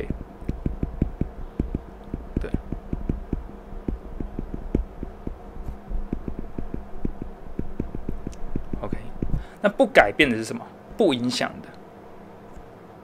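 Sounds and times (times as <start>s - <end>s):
stylus tapping on tablet screen: 0.0s - 9.5s.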